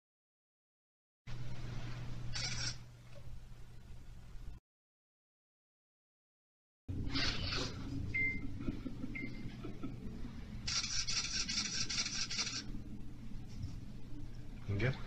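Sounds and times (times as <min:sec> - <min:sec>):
steady low hum: 0:01.3 - 0:04.6, 0:06.9 - 0:15.0
camera shutter bursts: 0:02.3 - 0:02.8, 0:10.7 - 0:12.7.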